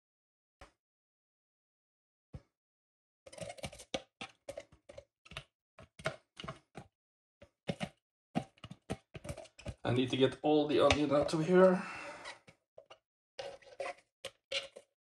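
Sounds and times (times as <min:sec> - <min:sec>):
plastic container knocking on bowl: 0:10.7 - 0:11.4.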